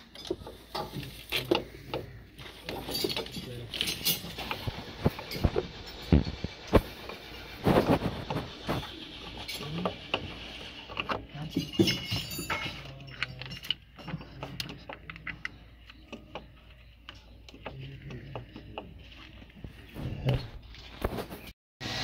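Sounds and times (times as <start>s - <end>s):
metal clinks and knocks of tools: 0.0s - 6.2s, 11.0s - 16.3s.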